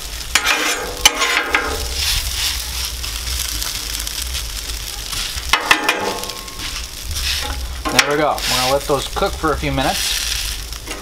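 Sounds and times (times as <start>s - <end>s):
hash browns sizzling on griddle: 0.0s - 11.0s
metal spatulas scraping steel: 0.4s - 2.1s.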